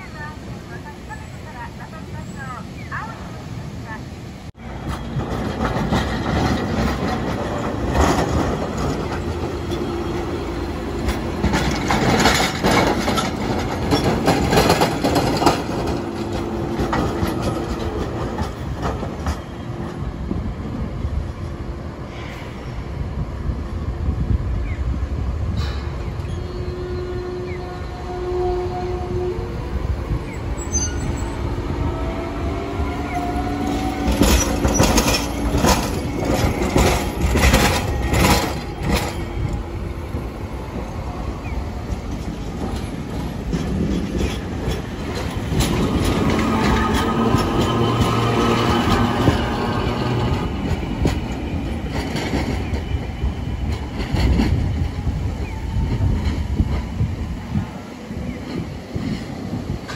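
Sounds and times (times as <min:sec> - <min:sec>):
streetcar rumbling: 0:00.0 - 0:59.9
wheels clacking over rail joints: 0:04.7 - 0:20.1, 0:32.1 - 0:59.9.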